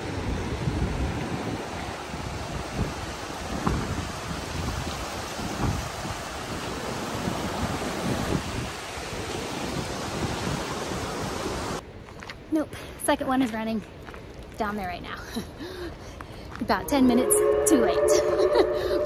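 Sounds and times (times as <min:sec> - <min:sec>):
river rushing: 0:00.0 - 0:11.8
wind buffeting microphone: 0:00.0 - 0:11.8.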